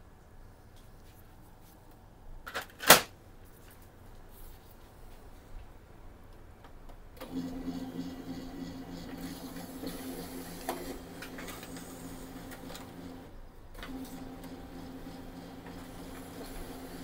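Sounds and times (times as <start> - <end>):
laser printer motor humming: 7.2 - 17.0
printer clicks: 9.2 - 13.2, 13.8 - 17.0.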